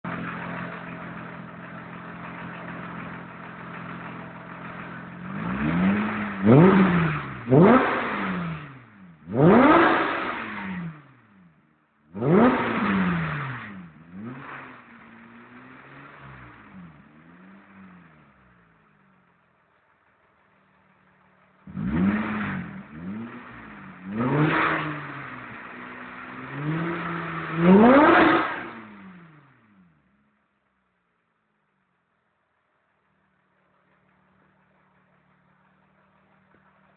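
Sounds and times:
car engine revving: 0:00.0 - 0:19.0, 0:20.0 - 0:30.3.

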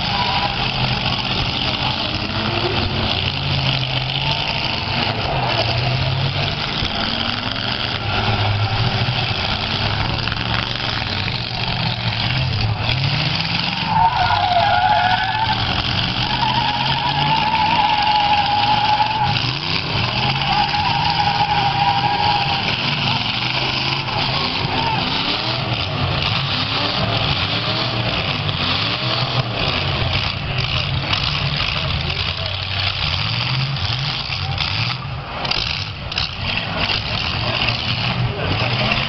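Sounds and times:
tyre squeal: 0:00.0 - 0:01.2, 0:12.9 - 0:25.8
car engines revving: 0:00.0 - 0:39.0.

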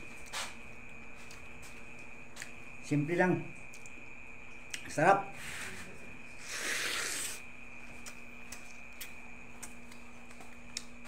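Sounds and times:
chewing and lip smacks: 0:01.2 - 0:02.6, 0:03.6 - 0:04.9, 0:07.9 - 0:11.0.

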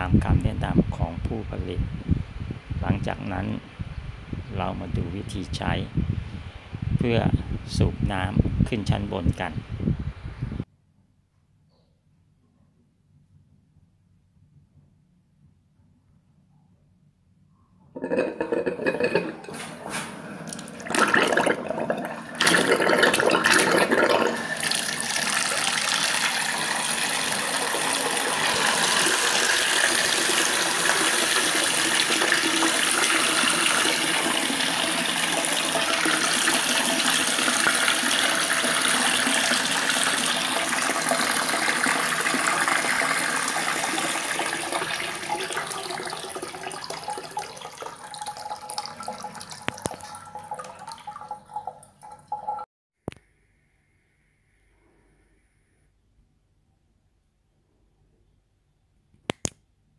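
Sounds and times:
water gushing from pump: 0:20.5 - 0:51.6.

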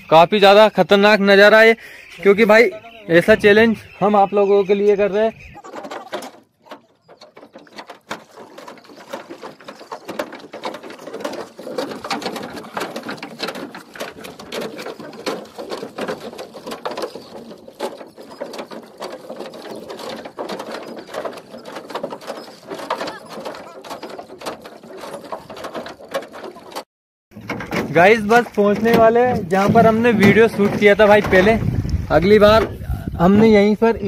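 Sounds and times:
oars knocking against wooden boat: 0:00.0 - 0:34.0
water splashing: 0:06.8 - 0:26.8.

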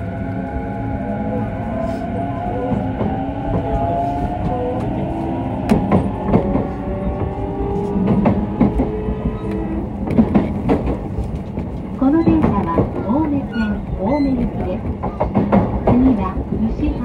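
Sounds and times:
train interior rumble: 0:00.0 - 0:17.0
wheels clicking over rail joints: 0:05.7 - 0:16.7.

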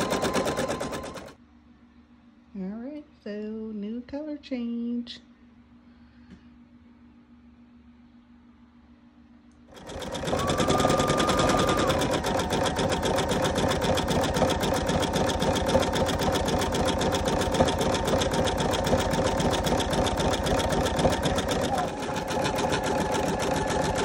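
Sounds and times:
embroidery machine stitching: 0:00.0 - 0:01.4, 0:09.7 - 0:24.0.

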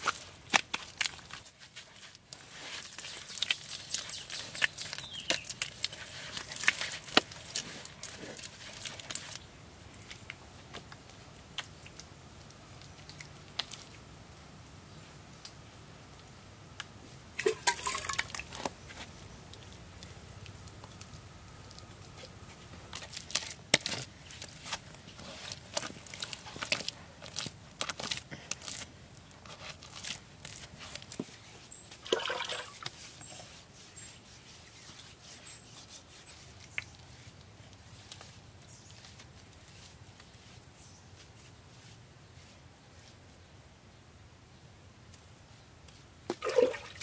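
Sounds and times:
hands smoothing wet mortar: 0:00.1 - 0:09.4, 0:29.5 - 0:43.1.

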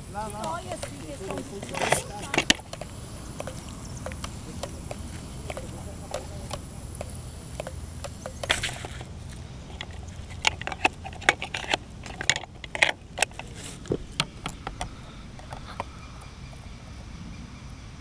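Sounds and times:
low steady rumble: 0:00.0 - 0:18.0
rustle: 0:00.0 - 0:18.0.

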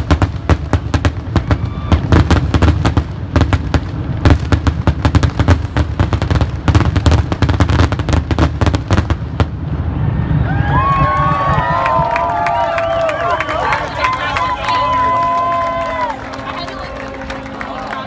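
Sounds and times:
fireworks booming and crackling: 0:00.0 - 0:12.7.

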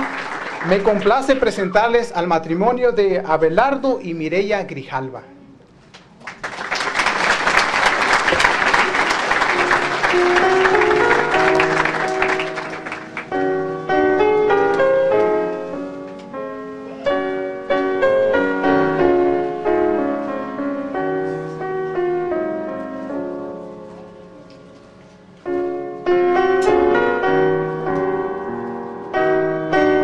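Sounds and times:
audience applauding: 0:00.0 - 0:01.8, 0:06.2 - 0:13.5.

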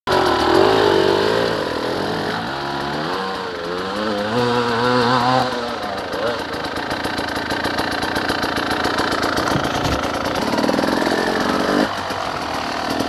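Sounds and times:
dirt bike engines revving: 0:00.1 - 0:13.0.

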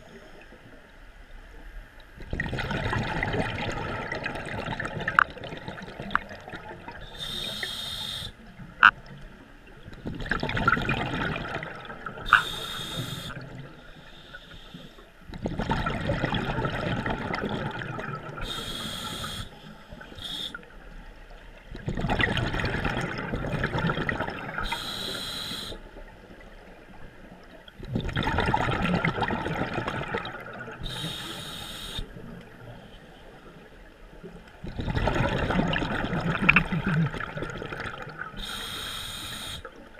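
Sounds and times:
exhaust bubbling underwater: 0:02.2 - 0:07.6, 0:09.8 - 0:13.8, 0:15.3 - 0:20.7, 0:21.6 - 0:25.2, 0:27.8 - 0:31.4, 0:34.6 - 0:38.6
regulator inhale hiss: 0:07.0 - 0:08.5, 0:12.3 - 0:15.1, 0:18.4 - 0:20.7, 0:24.6 - 0:25.9, 0:30.8 - 0:32.2, 0:38.4 - 0:39.8.

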